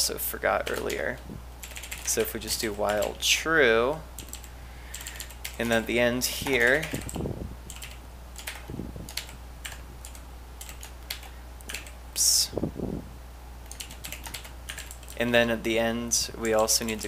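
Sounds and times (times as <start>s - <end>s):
low steady hum: 0.0s - 17.0s
typing on computer keyboard: 0.6s - 3.2s, 4.2s - 5.8s, 6.4s - 12.0s, 13.6s - 15.2s.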